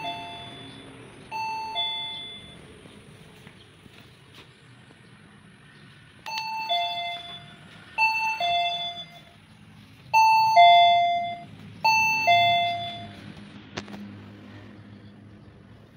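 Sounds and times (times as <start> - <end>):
doorbell ding-dong chime: 0.0 - 2.6, 6.3 - 9.3, 10.2 - 13.2.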